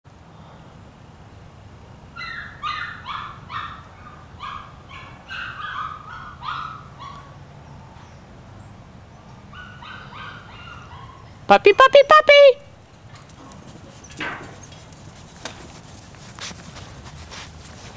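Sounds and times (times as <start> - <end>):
puppies yipping and whining: 2.1 - 7.8, 9.4 - 11.4.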